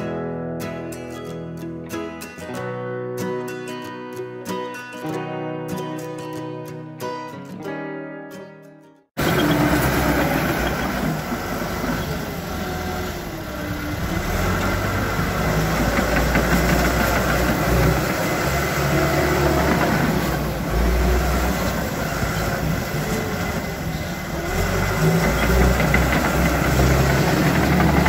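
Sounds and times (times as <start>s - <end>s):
diesel engine running: 9.2s - 28.0s.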